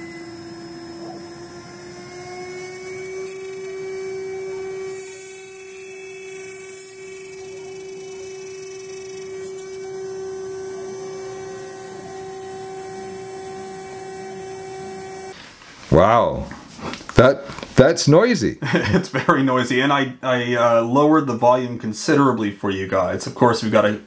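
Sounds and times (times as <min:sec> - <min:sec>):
router spindle whine: 0:00.0 - 0:15.4
machine hiss: 0:00.0 - 0:15.6.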